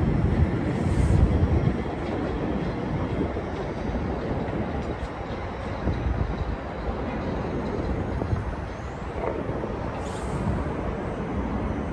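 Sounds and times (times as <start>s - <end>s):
subway train rumbling: 0.0s - 11.9s
brief hiss: 10.0s - 10.6s.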